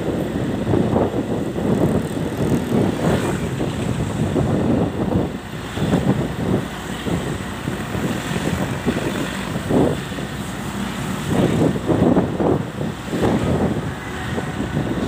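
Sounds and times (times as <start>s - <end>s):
vehicle rumble: 0.0s - 15.0s
wind buffeting microphone: 0.0s - 15.0s.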